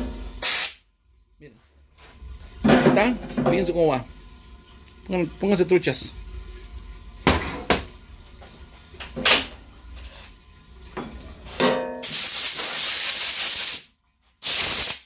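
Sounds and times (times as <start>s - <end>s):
loud steady hiss: 0.4s - 0.8s, 12.0s - 15.0s.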